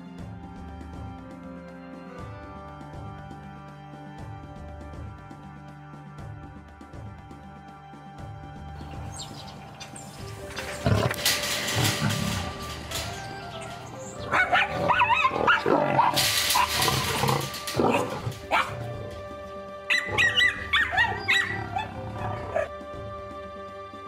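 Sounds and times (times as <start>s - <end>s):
background music with held notes: 0.0s - 24.0s
dogs barking and yapping: 8.8s - 22.8s.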